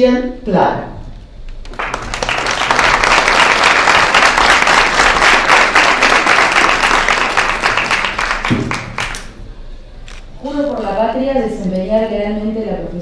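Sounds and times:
audience applauding: 0:01.6 - 0:09.3.

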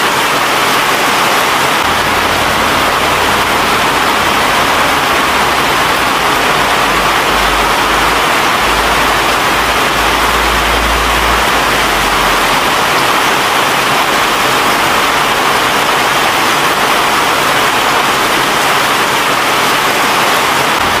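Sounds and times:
loud steady rushing noise: 0:00.0 - 0:21.0
low rumble: 0:01.8 - 0:13.1.

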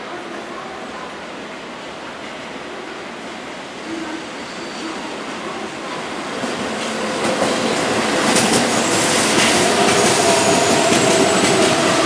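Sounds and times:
high wheel squeal: 0:04.4 - 0:05.2
train running rumble: 0:06.5 - 0:12.0.

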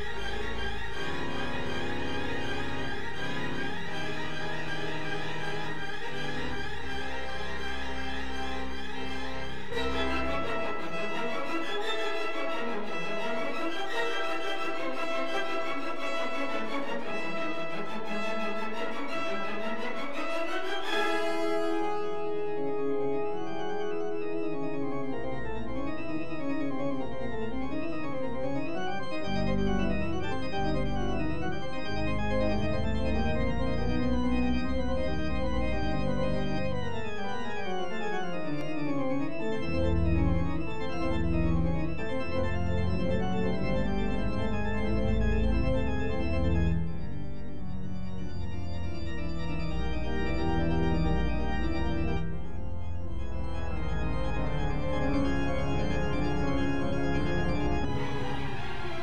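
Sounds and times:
pipe organ rapid runs: 0:00.0 - 0:59.0
heavy low organ chords: 0:21.8 - 0:58.5.

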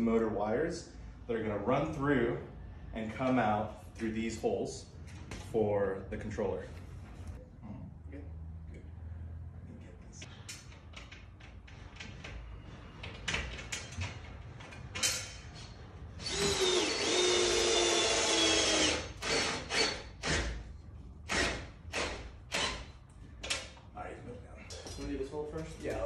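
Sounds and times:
cordless drill driving a screw: 0:16.2 - 0:20.4.

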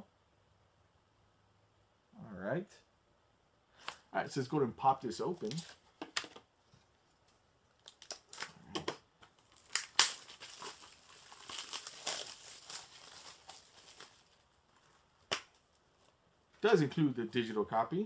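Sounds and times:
plastic wrap tearing and crinkling: 0:07.8 - 0:08.6, 0:09.3 - 0:16.1.

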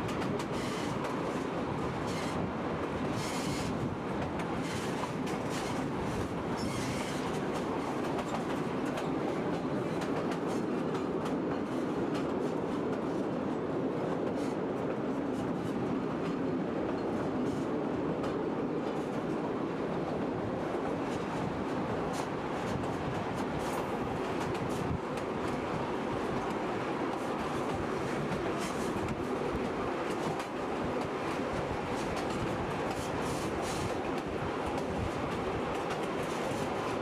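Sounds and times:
rail joint clicks: 0:00.0 - 0:37.0
train wheels rumbling on rails: 0:00.0 - 0:37.0.

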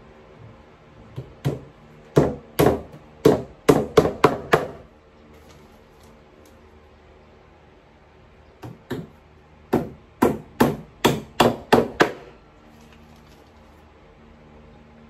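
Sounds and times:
hammer striking a nail: 0:01.1 - 0:04.9, 0:08.6 - 0:12.3.

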